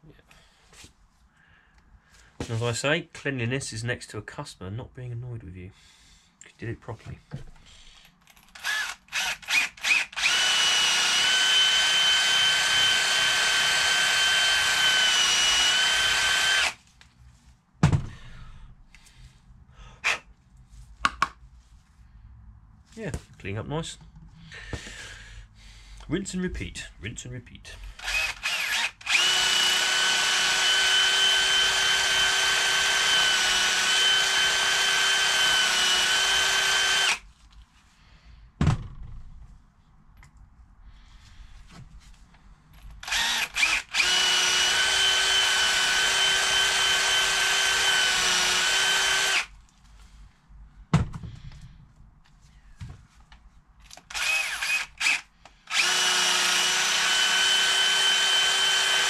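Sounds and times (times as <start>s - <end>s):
cordless drill running: 8.5s - 16.8s, 27.9s - 37.2s, 43.0s - 49.5s, 53.9s - 59.0s.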